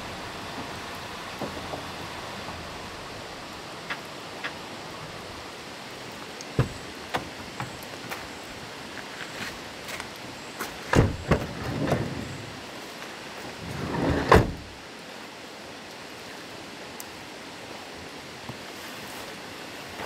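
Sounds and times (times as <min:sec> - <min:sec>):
sliding door rolling and thudding: 0:00.0 - 0:03.4, 0:10.9 - 0:12.5, 0:13.6 - 0:14.7
light rain hissing: 0:00.0 - 0:20.0
car door slamming: 0:06.6 - 0:06.8, 0:10.9 - 0:11.4.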